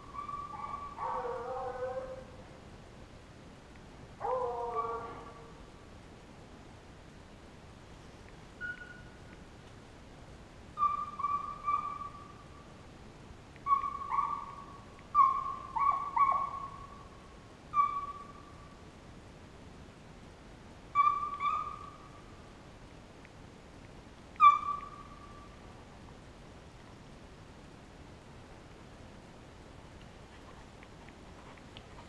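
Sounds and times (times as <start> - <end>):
hounds baying: 0.1 - 2.3, 4.2 - 5.5, 13.7 - 14.6, 15.2 - 16.8.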